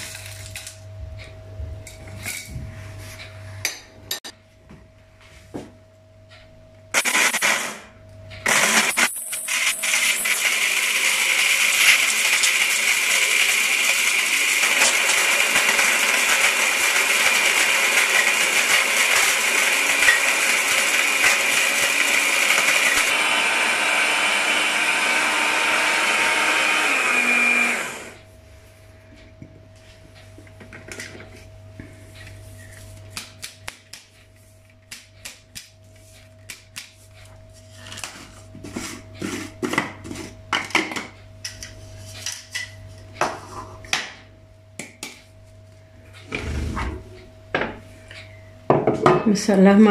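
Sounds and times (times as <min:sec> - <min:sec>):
electric blender grinding spices: 0:07.0 - 0:07.8, 0:08.4 - 0:28.2.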